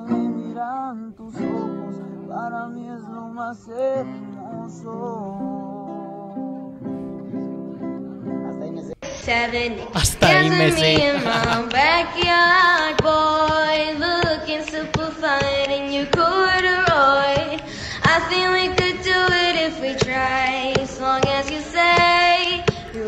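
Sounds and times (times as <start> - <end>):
high solo singing voice: 10.0 - 11.8.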